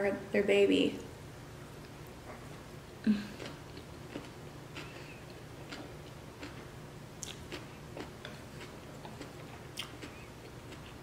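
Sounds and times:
low steady hum: 0:00.0 - 0:11.0
wet mouth clicks chewing: 0:07.2 - 0:11.0.

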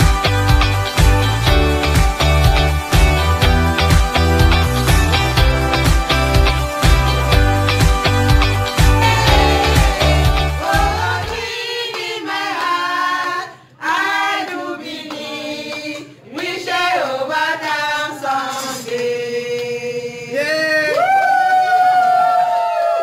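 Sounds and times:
women singing in chorus: 0:09.0 - 0:20.4.

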